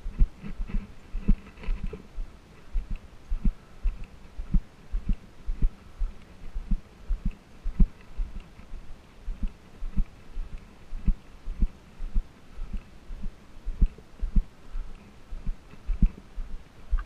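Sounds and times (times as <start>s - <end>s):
footsteps on dirt trail: 0.0s - 17.0s.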